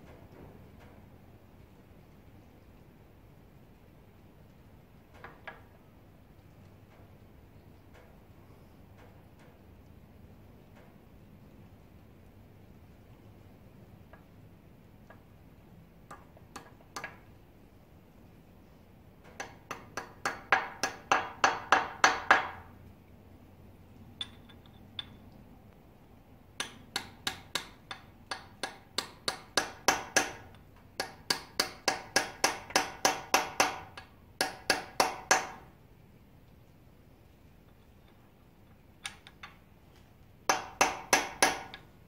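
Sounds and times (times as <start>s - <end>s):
hammer tapping on metal: 16.1s - 17.3s, 19.2s - 22.7s, 24.2s - 25.3s, 26.6s - 35.7s, 40.5s - 41.9s.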